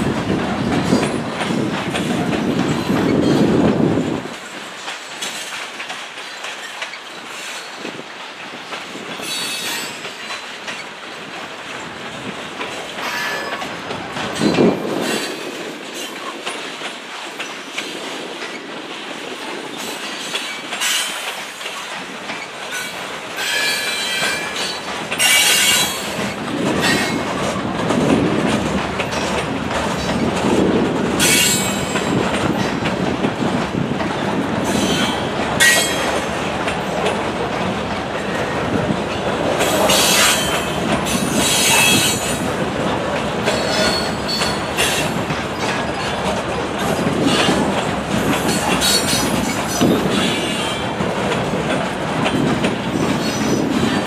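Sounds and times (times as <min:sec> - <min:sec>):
freight train wheels rumbling: 0:00.0 - 0:54.0
wheel squeals: 0:43.5 - 0:46.2.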